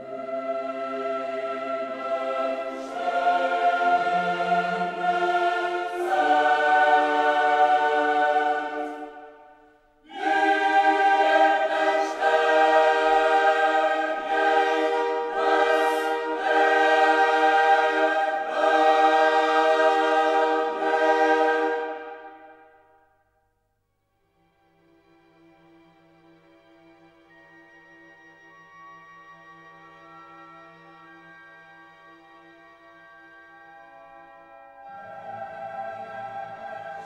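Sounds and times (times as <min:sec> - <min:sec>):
choir singing held chords: 0:00.0 - 0:23.1, 0:34.4 - 0:37.0.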